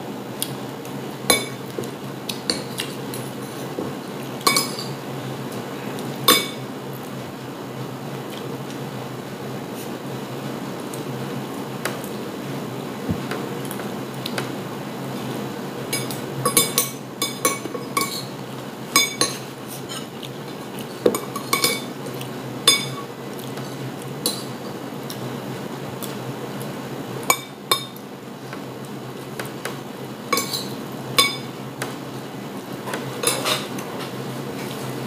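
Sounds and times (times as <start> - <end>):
cutlery scraping ceramic plate: 32.9 - 34.2.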